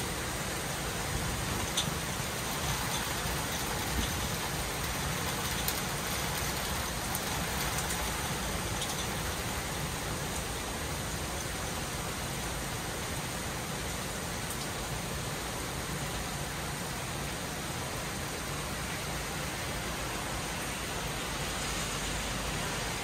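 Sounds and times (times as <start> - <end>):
steady rain hiss: 0.0 - 23.0
raindrops ticking nearby: 0.5 - 12.5, 13.2 - 15.0.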